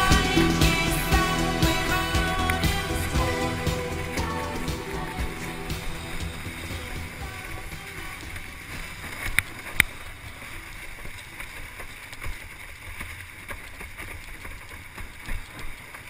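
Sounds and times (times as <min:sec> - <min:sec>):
water slapping along a hull: 0:07.2 - 0:16.0.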